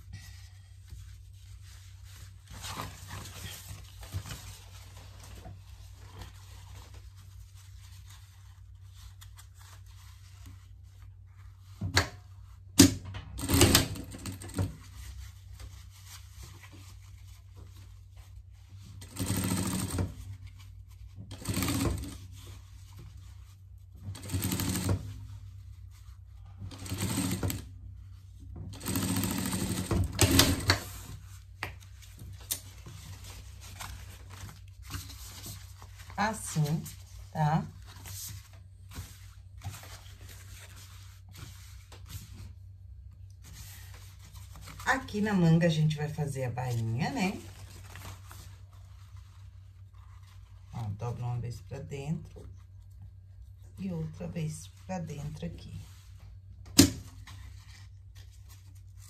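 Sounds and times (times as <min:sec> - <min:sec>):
sewing machine stitching: 0:13.4 - 0:14.7, 0:19.0 - 0:20.2, 0:21.3 - 0:22.2, 0:24.1 - 0:25.0, 0:26.7 - 0:27.7, 0:28.7 - 0:30.9.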